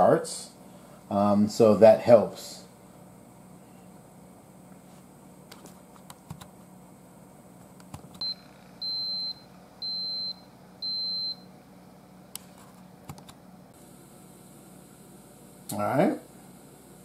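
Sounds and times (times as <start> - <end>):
multicooker beeping: 8.2 - 11.4.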